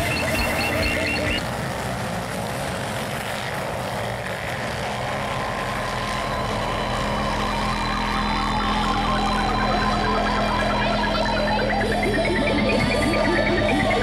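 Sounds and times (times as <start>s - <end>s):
wavering melody: 0.0s - 1.6s, 5.9s - 14.0s
motorcycle engines racing: 0.0s - 14.0s.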